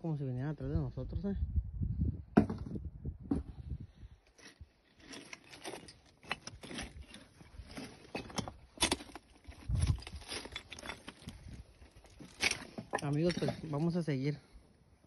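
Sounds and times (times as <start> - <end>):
footsteps crunching on loose rock: 4.3 - 14.0.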